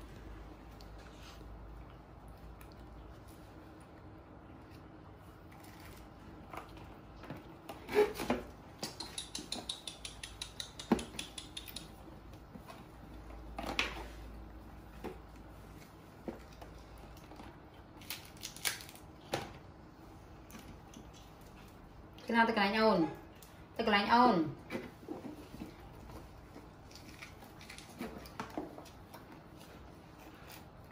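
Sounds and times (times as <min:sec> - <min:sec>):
monkeys eating and shifting: 0:00.0 - 0:17.9.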